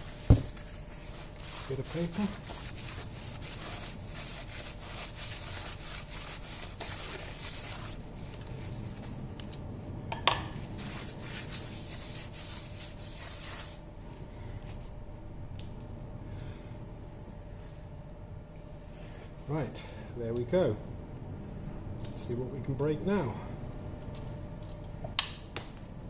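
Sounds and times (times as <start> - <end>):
paper towel rubbing on metal: 0.0 - 8.0, 10.7 - 13.8.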